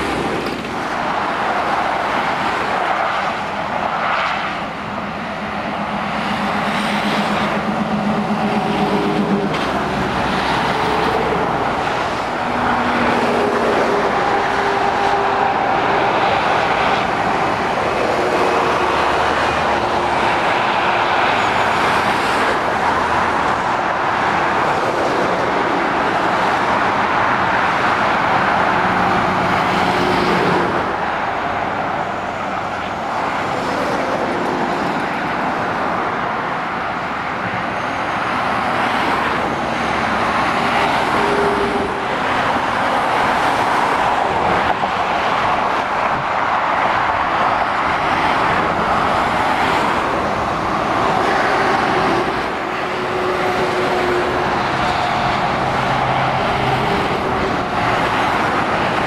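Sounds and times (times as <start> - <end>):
lorry engines droning: 0.0 - 59.0
traffic tyre and road noise: 0.0 - 59.0.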